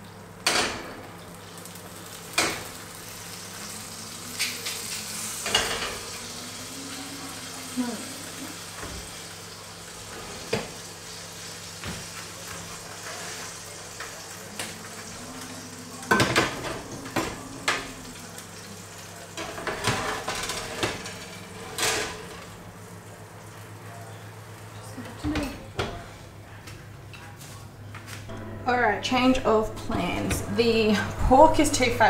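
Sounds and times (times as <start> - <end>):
roasting fat sizzling: 0.0 - 26.6, 27.4 - 32.0
metal trays clanking and scraping: 19.4 - 22.5.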